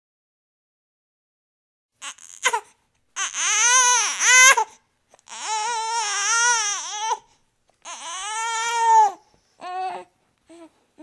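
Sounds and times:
baby crying: 2.0s - 10.8s.

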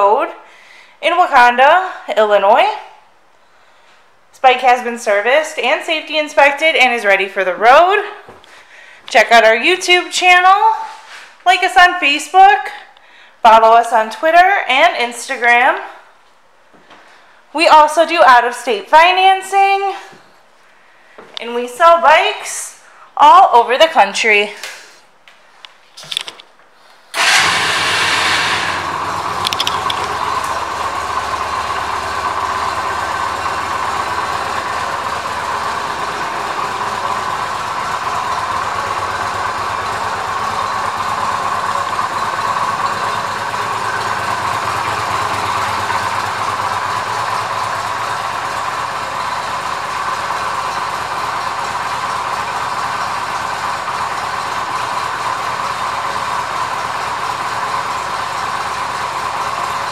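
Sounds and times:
motorcycle engine starting and idling: 27.1s - 59.9s.

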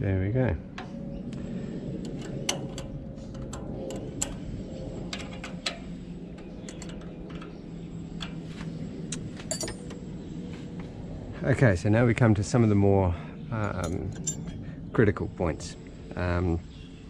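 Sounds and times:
steady low hum: 0.0s - 17.0s
small clicks and metallic taps: 5.1s - 7.6s.

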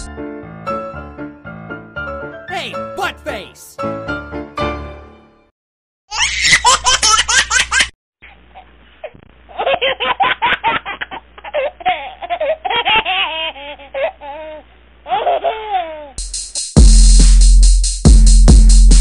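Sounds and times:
person laughing: 2.5s - 3.7s.

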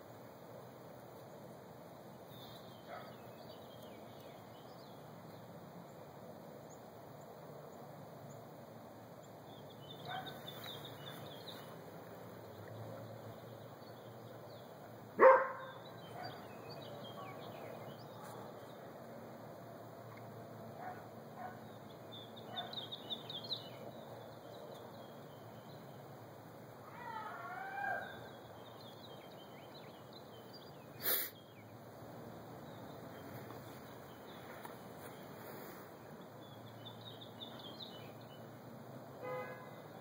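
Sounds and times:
birds chirping faintly: 0.0s - 40.0s
dog barking: 2.9s - 3.2s, 10.1s - 10.4s, 15.2s - 16.4s, 20.8s - 21.6s.

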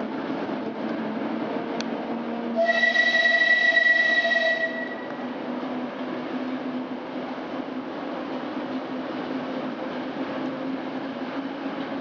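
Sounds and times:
high-pitched wheel squeal: 2.6s - 5.2s.

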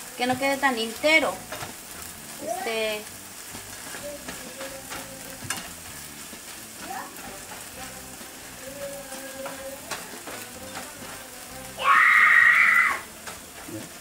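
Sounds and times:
onion and tomato sizzling in pan: 0.0s - 14.0s.

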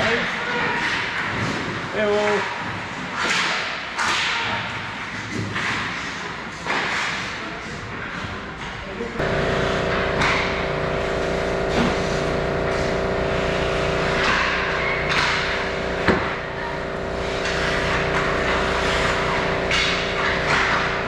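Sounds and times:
mechanical hum: 0.0s - 21.0s
hockey stick clack: 0.5s - 11.2s, 12.6s - 21.0s
skate blades scraping ice: 9.4s - 21.0s.

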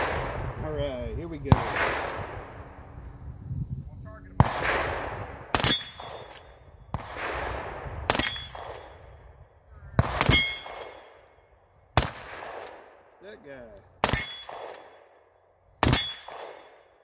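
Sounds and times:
gunshots with echo: 1.5s - 2.6s, 4.4s - 9.1s, 10.0s - 11.3s, 12.0s - 13.1s, 14.0s - 15.1s, 15.8s - 17.0s
sharp metallic clank: 5.6s - 6.5s, 8.1s - 9.0s, 10.2s - 11.1s, 14.0s - 15.0s, 15.8s - 16.8s.

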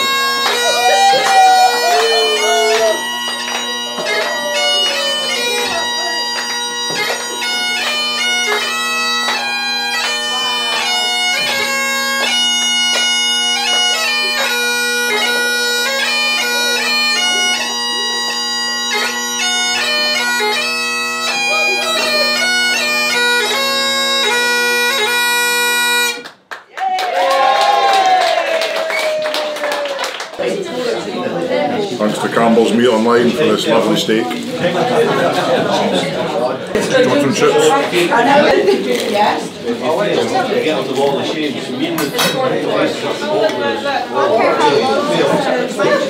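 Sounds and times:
bagpipe playing a tune: 0.0s - 26.3s, 44.1s - 46.0s.

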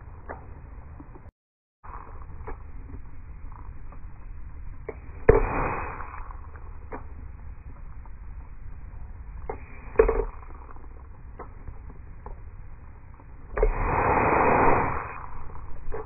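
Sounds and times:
water mister spraying hiss: 13.6s - 15.3s.

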